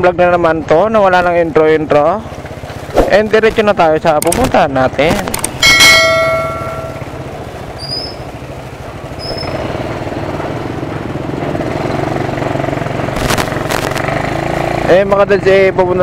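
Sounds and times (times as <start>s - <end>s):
motor tricycles passing: 0.0s - 16.0s
street traffic: 0.0s - 16.0s
motorcycle engine at low revs: 0.2s - 16.0s
bell-like chime: 5.6s - 7.1s.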